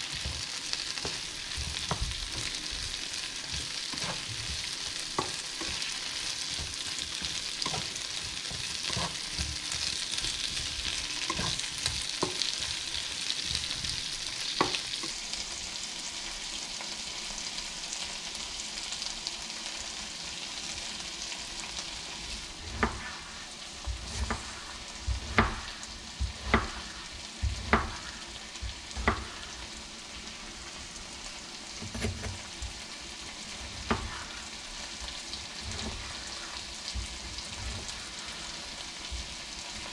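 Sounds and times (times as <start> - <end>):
vegetables sizzling in a frying pan: 0.0 - 39.9
knife chopping on cutting board: 0.1 - 14.0, 22.7 - 23.1, 23.9 - 29.5, 31.8 - 32.7, 33.8 - 34.3.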